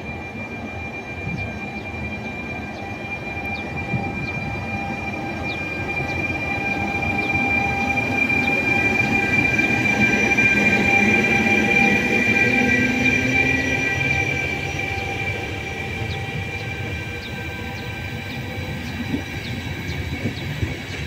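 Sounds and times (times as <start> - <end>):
train running gear rumble: 0.0 - 21.0
train wheels squealing on rails: 0.0 - 21.0.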